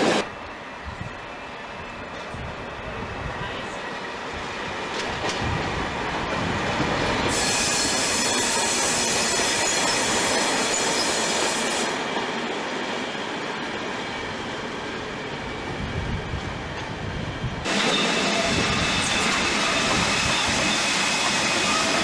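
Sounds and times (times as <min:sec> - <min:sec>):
train wheels on rails: 0:00.0 - 0:22.0
loud hiss: 0:07.2 - 0:09.8.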